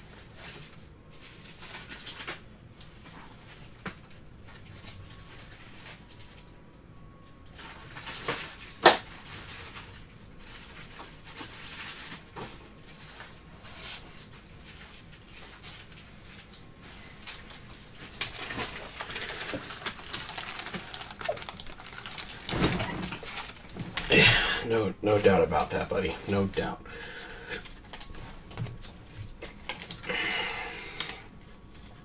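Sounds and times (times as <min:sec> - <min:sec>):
trading cards and sleeves rustling: 0:17.0 - 0:24.1.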